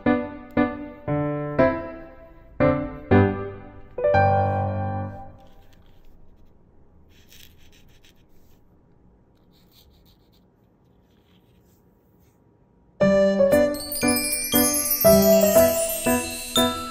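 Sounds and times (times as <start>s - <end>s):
marker scratching on paper: 5.4s - 8.7s, 9.4s - 12.4s
loud music with jingling chimes: 13.6s - 16.9s.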